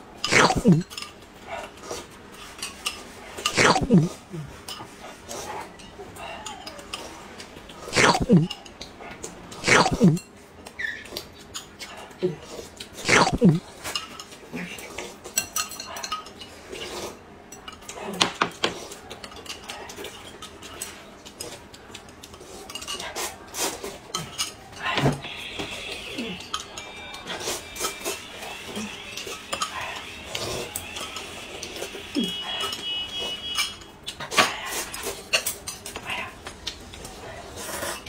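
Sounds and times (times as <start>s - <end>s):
noodles being slurped: 0.2s - 0.9s, 3.2s - 4.6s, 7.8s - 8.5s, 9.5s - 10.2s, 12.6s - 13.9s.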